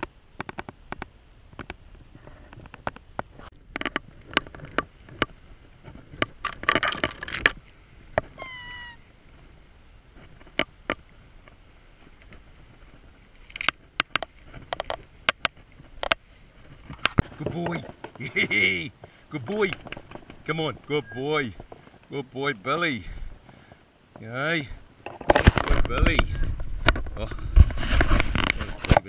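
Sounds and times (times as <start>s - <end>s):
brush rustling: 0.0s - 29.0s
short high animal call: 8.4s - 9.1s, 21.0s - 21.4s
footsteps crunching in undergrowth: 11.5s - 22.2s.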